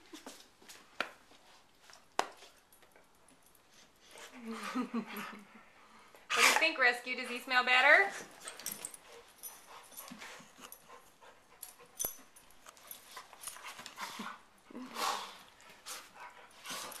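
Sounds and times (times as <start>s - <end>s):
dogs breathing: 8.1s - 17.0s.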